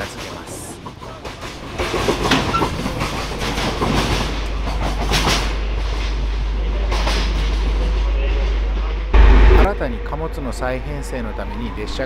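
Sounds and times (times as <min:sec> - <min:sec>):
train wheels clattering over rail joints: 0:00.0 - 0:06.3.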